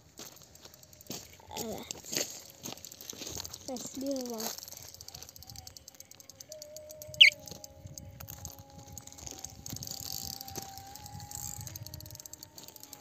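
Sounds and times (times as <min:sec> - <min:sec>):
high chirring haze: 0:00.1 - 0:13.0
thin hum: 0:05.5 - 0:13.0
sharp downward chirp: 0:06.6 - 0:07.4.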